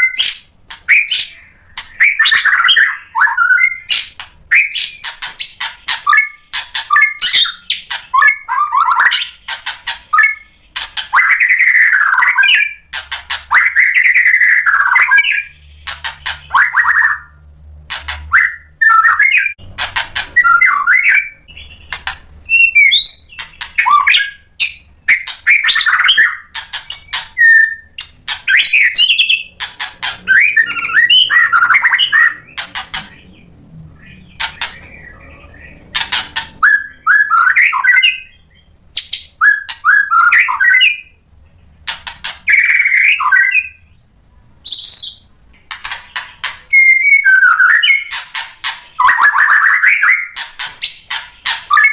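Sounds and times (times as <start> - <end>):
songbird singing varied phrases: 0.0 - 17.4, 20.2 - 41.3, 42.0 - 44.1, 44.7 - 45.4.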